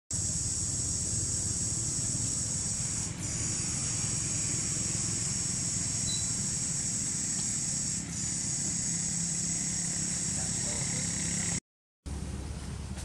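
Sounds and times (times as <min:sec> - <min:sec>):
high-pitched insect chorus: 0:00.2 - 0:11.6
low steady rumble: 0:00.2 - 0:13.0.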